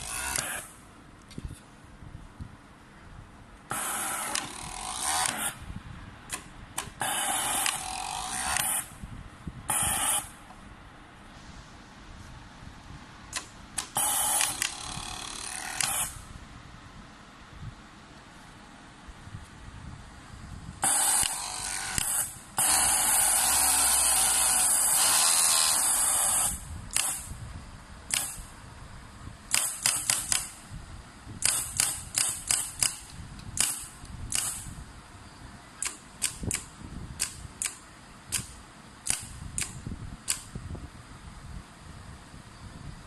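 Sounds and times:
air cylinder puffs and clicks: 6.3 - 7.8, 8.6 - 8.9, 13.3 - 16.2, 20.8 - 21.4, 22.0 - 23.1, 26.3 - 27.4, 28.1 - 28.5, 29.5 - 30.7, 31.4 - 34.8, 35.8 - 40.8
compressed air hissing: 9.7 - 10.4, 11.3 - 12.0, 13.8 - 15.1, 22.0 - 27.4.

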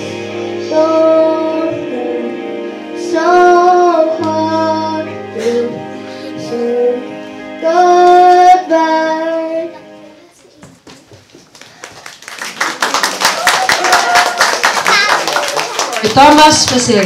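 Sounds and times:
instrumental accompaniment: 0.0 - 10.6
boy singing pop song: 0.6 - 10.2.

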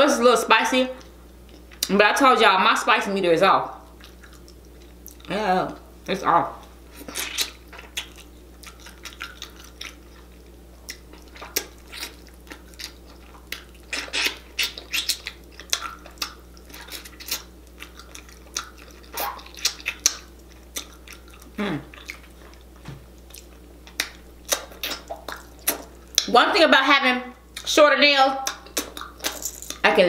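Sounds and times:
wet chewing and lip smacking: 3.9 - 5.3, 6.6 - 26.3, 28.4 - 29.8.

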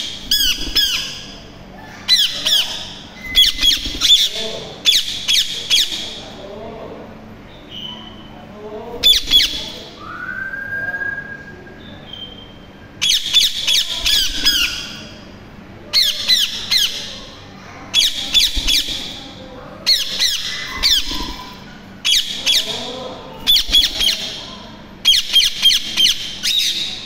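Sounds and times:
parakeets screeching: 0.0 - 6.4, 9.0 - 10.0, 13.0 - 15.3, 15.9 - 27.0.

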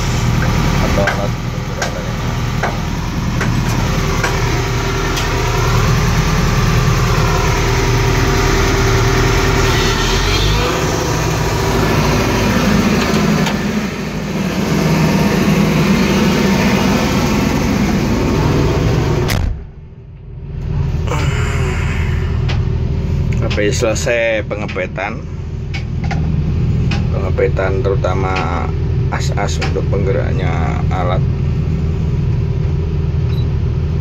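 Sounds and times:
excavator diesel engine idling: 0.0 - 34.0.

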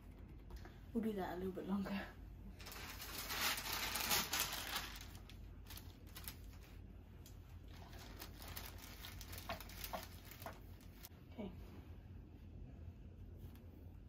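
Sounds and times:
iron rustling over paper: 2.6 - 6.8, 7.7 - 11.1
paper crackling: 2.6 - 6.8, 7.7 - 11.1.

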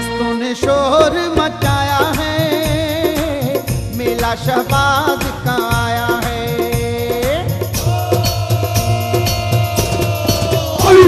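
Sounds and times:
steady drum beat: 0.6 - 11.0
man singing a long note: 7.8 - 11.0.

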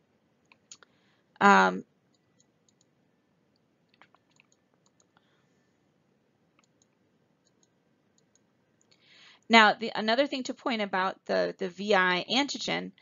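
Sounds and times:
faint clicks: 2.1 - 2.9, 3.5 - 5.3, 6.5 - 9.1.

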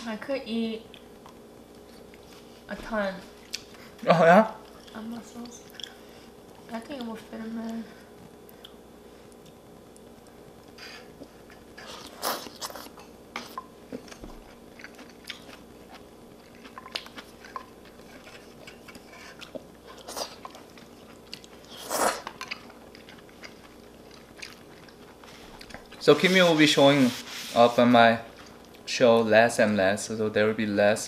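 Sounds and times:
person chewing noodles: 4.6 - 6.4, 8.4 - 26.0.

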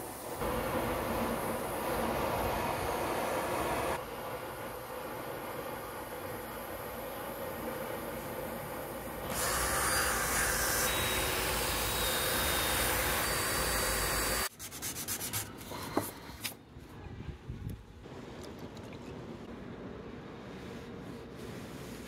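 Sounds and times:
drill spinning abrasive wheel: 9.3 - 14.5
hand sanding strokes: 14.5 - 15.8.

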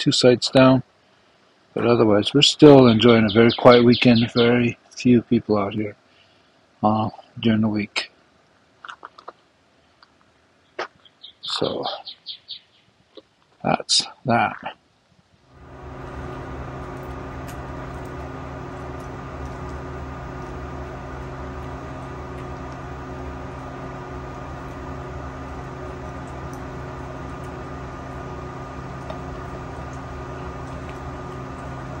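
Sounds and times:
steady machine hum: 1.4 - 7.5, 15.5 - 32.0
steady tones over low drone: 15.6 - 32.0.

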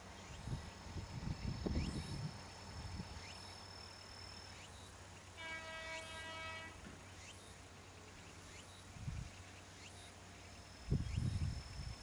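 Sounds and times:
train horn blast: 5.4 - 6.9.

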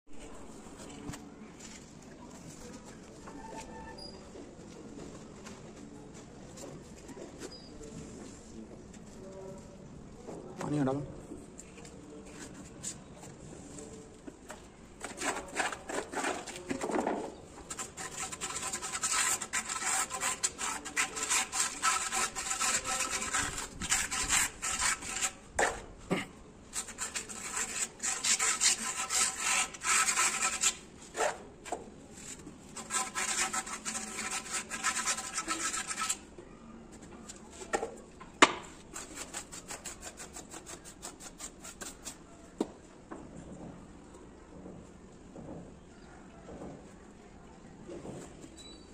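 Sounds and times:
trowel scraping mortar on stone: 14.5 - 36.3, 38.6 - 42.3.

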